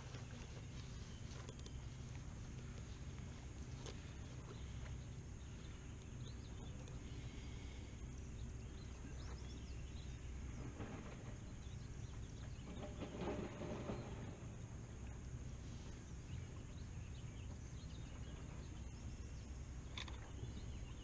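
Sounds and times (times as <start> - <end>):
low rumble: 0.0 - 21.0.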